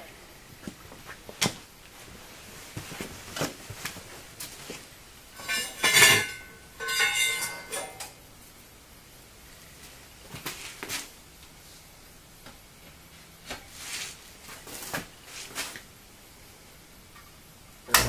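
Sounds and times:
metal clanking and clinking: 0:05.4 - 0:08.2.

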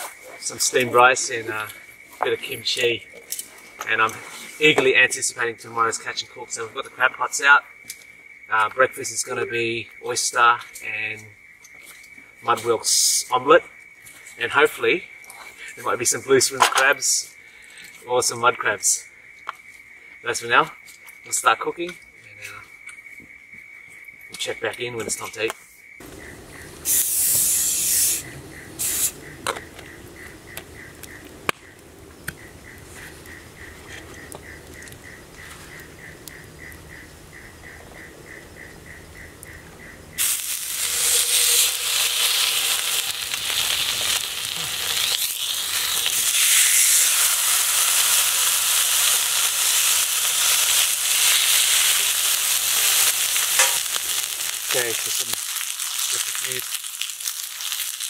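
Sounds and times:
steaks sizzling on griddle: 0:26.8 - 0:29.5, 0:40.2 - 0:58.0.

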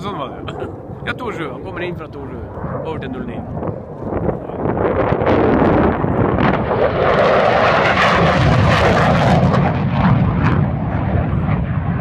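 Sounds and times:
jet aircraft passing: 0:00.0 - 0:12.0.

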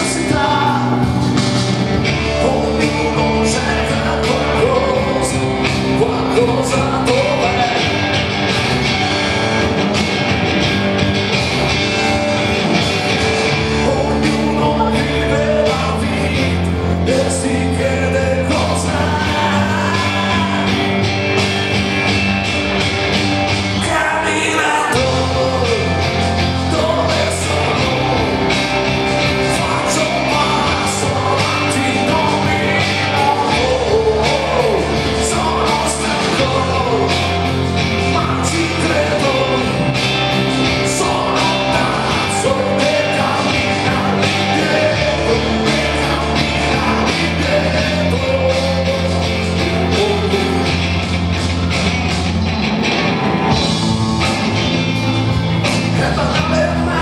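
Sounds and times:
man singing: 0:00.0 - 0:08.1, 0:13.4 - 0:21.0, 0:23.8 - 0:51.2, 0:55.6 - 0:57.0
rock band with electric guitar: 0:00.0 - 0:57.0.

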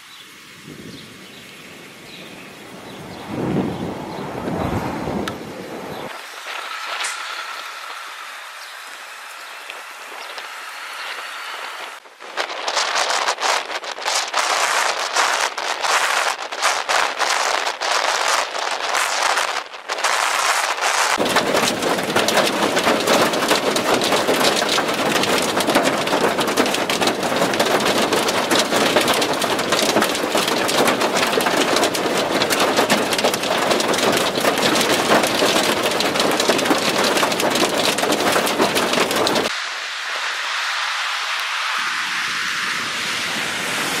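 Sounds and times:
heavy rain pelting down: 0:00.0 - 0:09.2, 0:12.0 - 0:44.0
soft steady rushing noise: 0:38.1 - 0:44.0.

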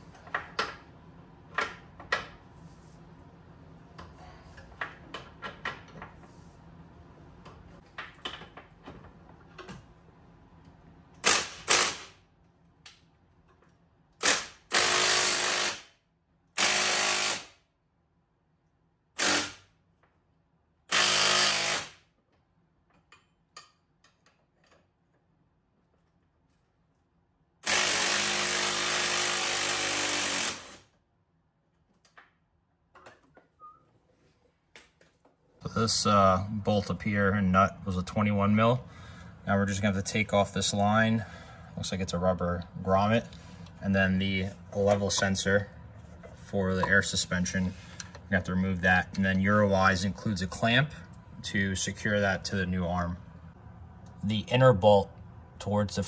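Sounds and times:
impact wrench hammering: 0:11.2 - 0:12.2, 0:14.2 - 0:15.9, 0:16.6 - 0:17.6, 0:19.2 - 0:19.7, 0:20.9 - 0:22.0, 0:27.6 - 0:30.8
tools and parts clinking: 0:22.9 - 0:25.2.

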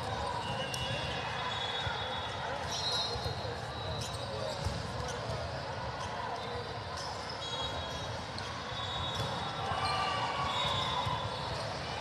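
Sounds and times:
shoe squeaks: 0:02.7 - 0:05.3, 0:06.0 - 0:08.0.

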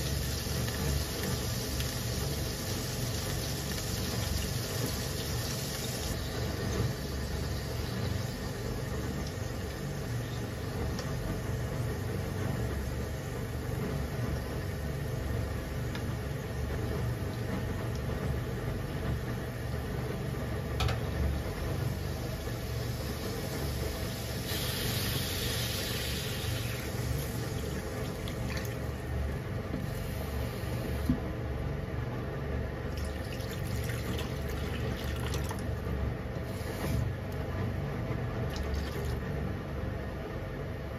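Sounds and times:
chicken sizzling in oil: 0:00.0 - 0:16.7, 0:21.3 - 0:31.0.

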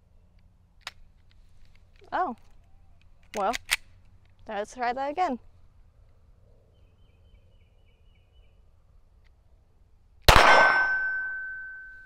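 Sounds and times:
pistol shot: 0:10.3 - 0:11.2
metallic ringing tone: 0:10.6 - 0:12.0.

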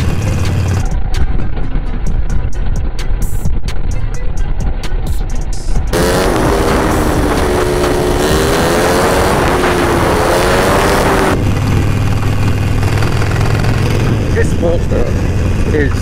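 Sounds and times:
motorcycle engine running: 0:00.0 - 0:16.0
wind rush: 0:05.7 - 0:16.0.

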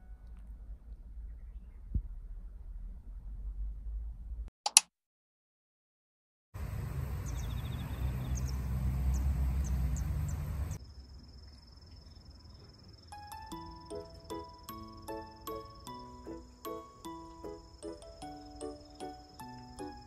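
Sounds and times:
low rumble: 0:00.1 - 0:04.5
sharp click: 0:04.6 - 0:04.9
high ticking chirps: 0:13.0 - 0:20.0.

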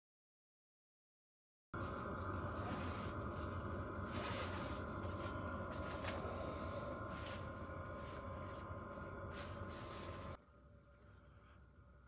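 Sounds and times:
heater blower fan whine: 0:01.8 - 0:12.0.

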